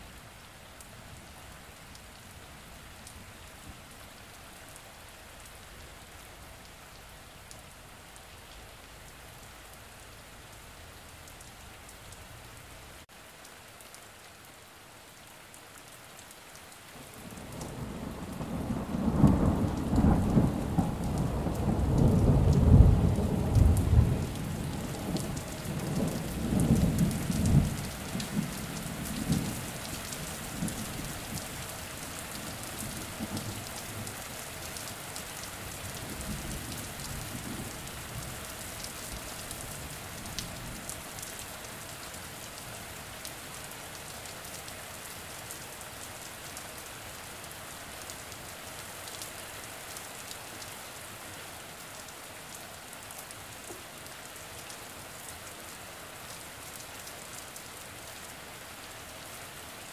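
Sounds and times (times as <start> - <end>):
steady rain: 0.0 - 59.9
thunder rumbling: 17.7 - 29.6.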